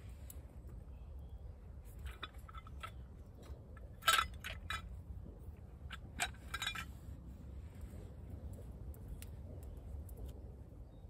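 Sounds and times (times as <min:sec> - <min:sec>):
metal pot and chain clinking: 0:02.0 - 0:05.0, 0:05.8 - 0:07.0.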